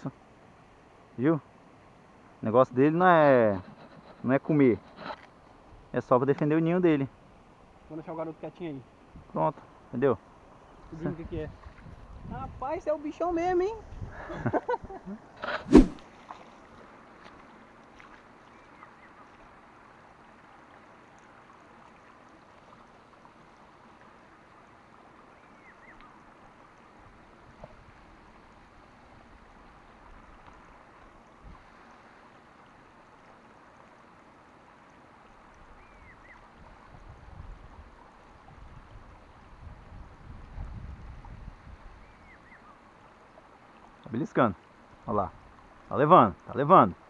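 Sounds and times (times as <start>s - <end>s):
steady low hiss: 0.0s - 47.0s
wind rumbling on microphone: 10.9s - 16.0s, 36.5s - 42.4s.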